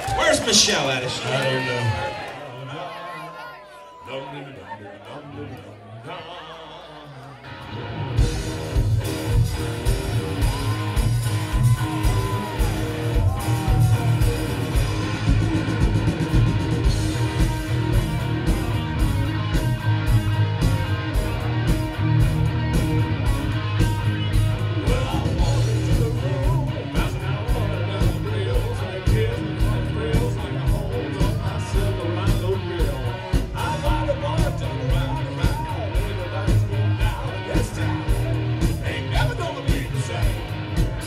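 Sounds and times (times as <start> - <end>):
rock band playing: 7.4 - 41.0
drums steady beat: 8.2 - 41.0.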